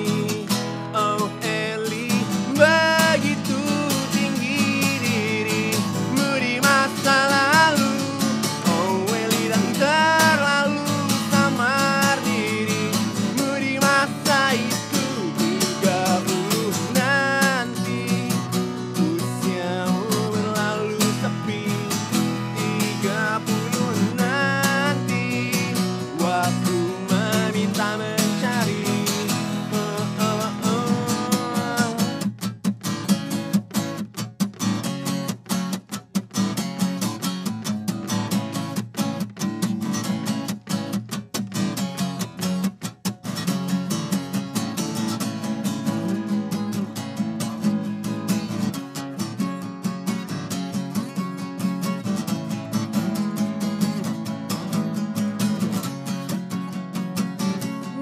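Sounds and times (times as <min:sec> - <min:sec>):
man singing wordlessly: 0:00.0 - 0:32.4, 0:57.5 - 0:58.0
acoustic guitars strumming: 0:00.0 - 0:58.0.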